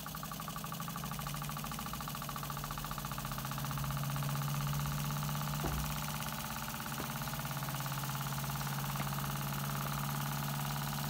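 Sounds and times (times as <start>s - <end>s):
small engines mechanical chatter: 0.0s - 11.0s.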